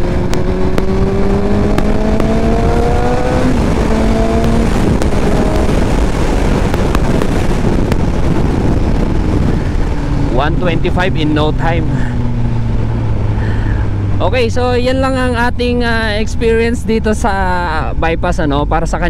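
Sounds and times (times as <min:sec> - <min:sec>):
wind rushing: 0:00.0 - 0:14.2
motorcycle engine accelerating: 0:00.0 - 0:16.8.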